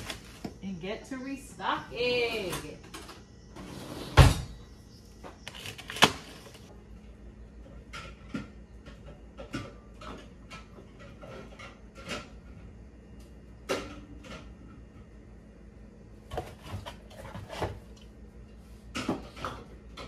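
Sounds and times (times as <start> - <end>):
plastic bags rustling: 0.0 - 0.6
groceries knocking and clunking: 0.0 - 15.4, 16.1 - 20.0.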